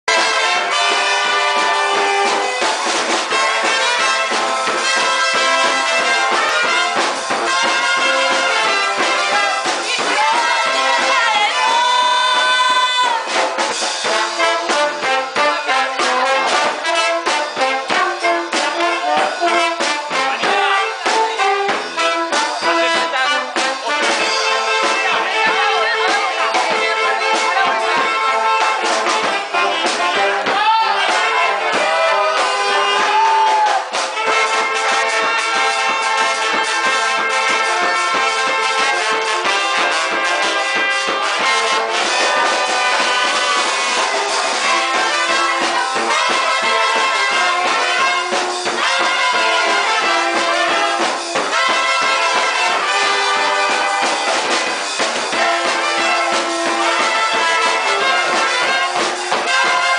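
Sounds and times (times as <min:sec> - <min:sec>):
brass band playing lively tune: 0:00.0 - 0:59.9
snare drum: 0:00.0 - 0:59.9
trumpets: 0:00.0 - 0:59.9
tuba: 0:00.0 - 0:59.9
bass drum: 0:00.1 - 0:59.9
saxophones: 0:00.1 - 0:59.9.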